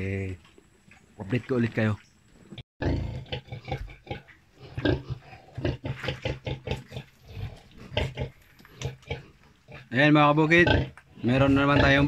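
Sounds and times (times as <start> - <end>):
pigs grunting and squealing: 2.8 - 12.0.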